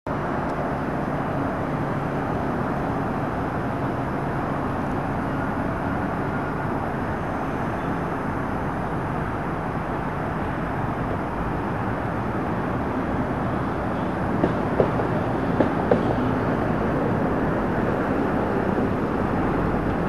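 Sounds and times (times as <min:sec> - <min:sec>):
metro train rumbling on track: 0:00.1 - 0:20.0
road traffic hum: 0:00.1 - 0:20.0.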